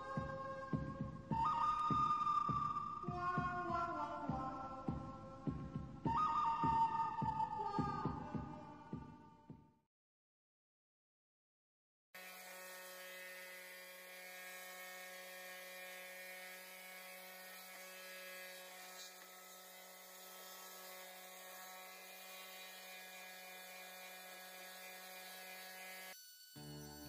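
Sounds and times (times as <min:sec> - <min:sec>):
orbital sander on wood: 0:12.2 - 0:27.0.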